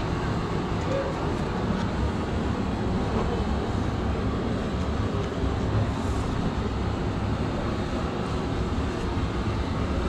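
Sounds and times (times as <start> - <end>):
steady low rumble: 0.0 - 10.0.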